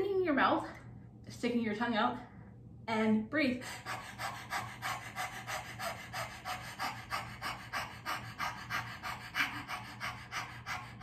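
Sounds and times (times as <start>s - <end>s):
woman panting rapidly: 3.6s - 11.0s.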